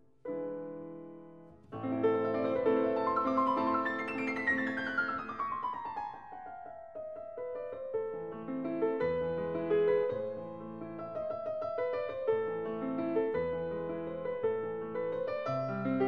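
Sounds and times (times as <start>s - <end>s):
piano music: 0.0s - 16.0s.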